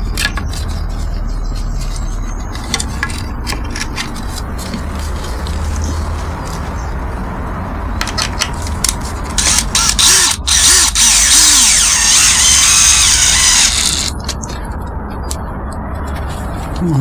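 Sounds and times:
cordless drill motor under load: 9.4s - 14.2s
drill clicks: 9.4s - 14.4s.

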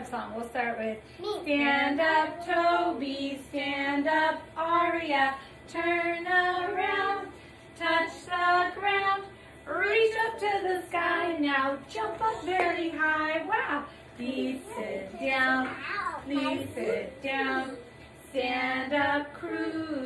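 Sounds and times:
woman singing: 0.0s - 20.0s
children singing along: 5.7s - 9.2s, 14.2s - 17.8s.

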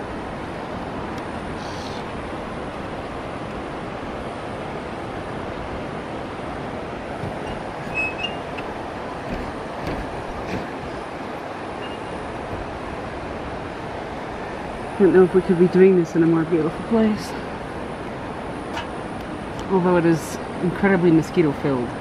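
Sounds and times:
steady rushing noise: 0.0s - 22.0s
light knocks: 7.2s - 10.8s.

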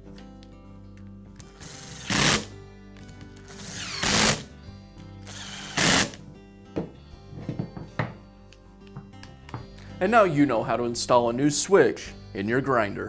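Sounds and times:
cordless screwdriver running: 1.6s - 2.5s, 3.5s - 4.5s, 5.2s - 6.2s.

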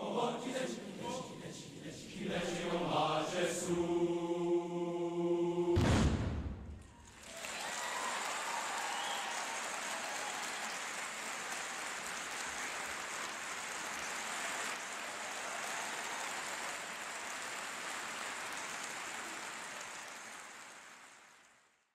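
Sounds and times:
audience applauding: 6.8s - 21.9s.

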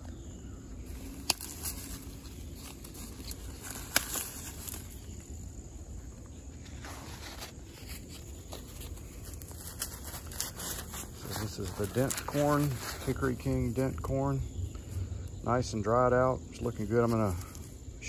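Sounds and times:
footsteps on wood-chip mulch: 0.0s - 17.8s
dry corn stalks rustling: 0.0s - 18.0s
corn ears snapping: 0.9s - 5.3s, 6.8s - 13.3s.

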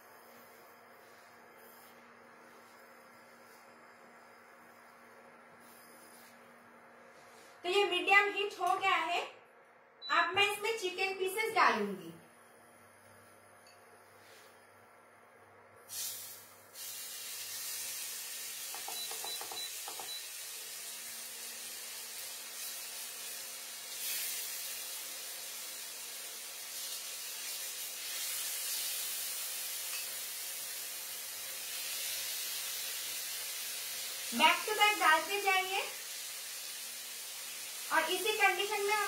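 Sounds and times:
chicken sizzling in oil: 15.9s - 39.0s.

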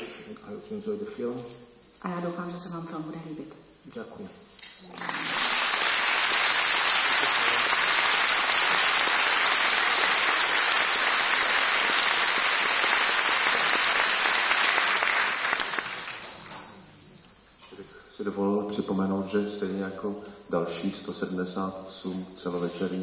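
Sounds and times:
audience applauding: 4.9s - 16.7s.

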